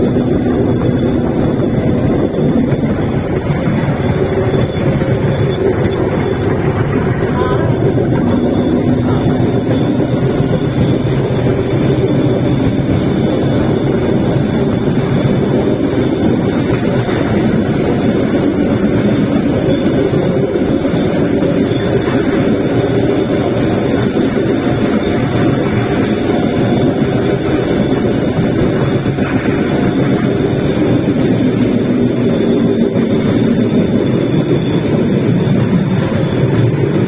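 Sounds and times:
train rumbling on rails: 0.0s - 37.0s.

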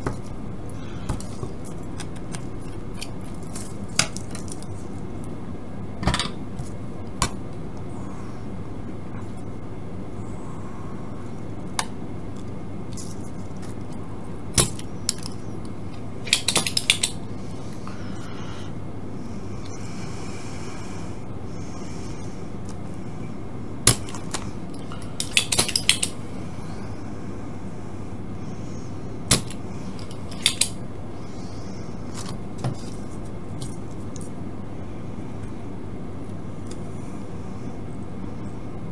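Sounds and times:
steady low hum: 0.0s - 38.9s
desoldering pump clicking: 25.2s - 26.1s, 29.3s - 30.8s.

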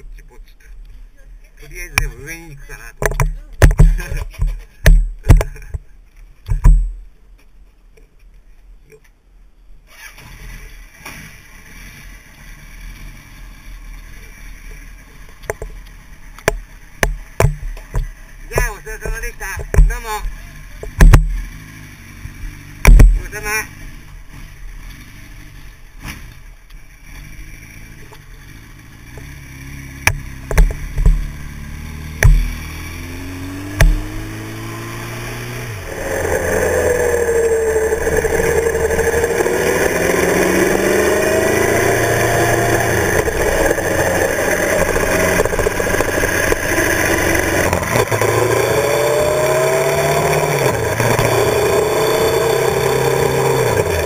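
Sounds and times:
wind and road noise: 0.0s - 54.0s
motorcycle engine: 1.4s - 7.1s, 9.9s - 54.0s
sharp thumps: 2.9s - 7.5s, 15.2s - 26.5s, 29.0s - 54.0s.

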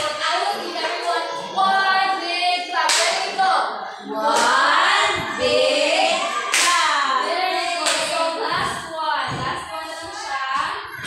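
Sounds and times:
hand claps: 6.4s - 6.9s, 7.8s - 8.1s.

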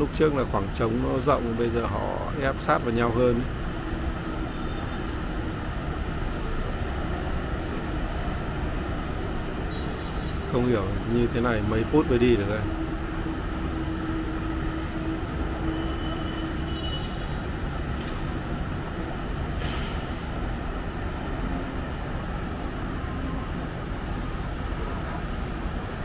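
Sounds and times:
city road traffic: 0.0s - 26.0s.

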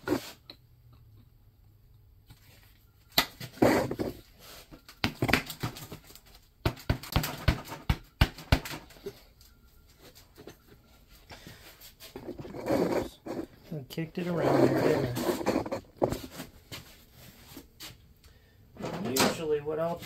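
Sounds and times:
metallic clicks knocks and scrapes: 14.5s - 16.4s.

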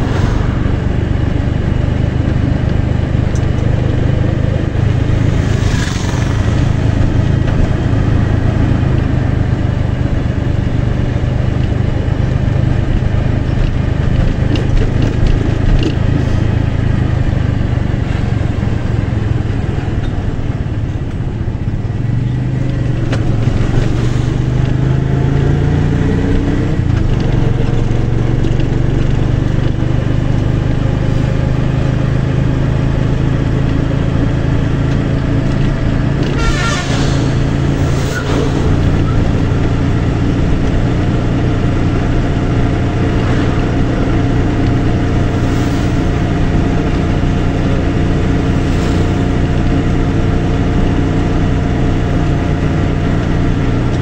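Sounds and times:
wavering higher sound: 0.0s - 2.6s, 36.8s - 42.2s
road noise: 0.0s - 54.0s
vehicle engine running: 0.0s - 54.0s.

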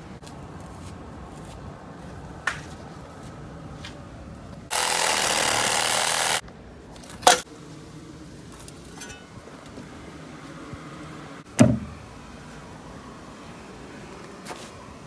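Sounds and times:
reciprocating saw cutting pipe: 4.7s - 6.4s.

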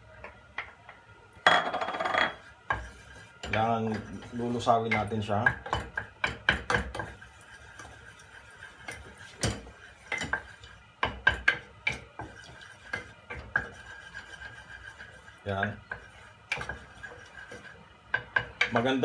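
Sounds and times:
spoon stirring melting butter: 2.3s - 19.0s
spoon knocking against pan: 4.8s - 7.2s, 8.9s - 13.8s, 15.8s - 18.9s.

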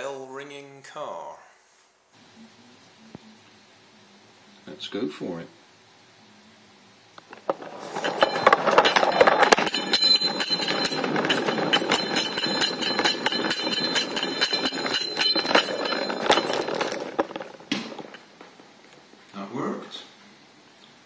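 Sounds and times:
toy car rattling on floor: 7.2s - 18.7s
metallic clattering and ringing: 7.3s - 18.7s.

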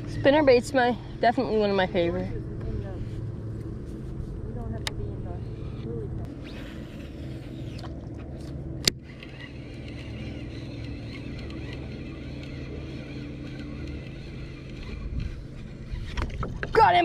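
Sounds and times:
low motor-like hum: 0.0s - 17.0s
fishing reel cranking: 5.4s - 16.5s.

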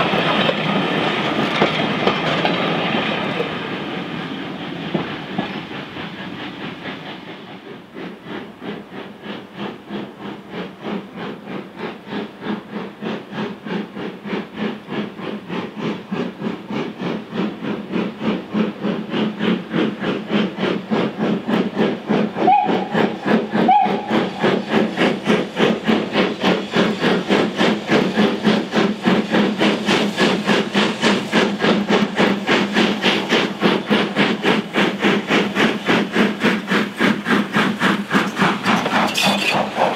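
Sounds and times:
passing train rumble: 0.0s - 39.9s
steam locomotive chimney exhaust beats: 0.0s - 39.9s.

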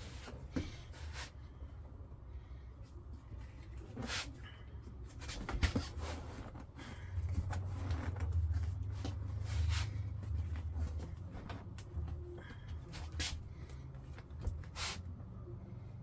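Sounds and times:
low steady rumble: 0.0s - 16.0s
upholstery scraping and rubbing: 5.1s - 12.2s.

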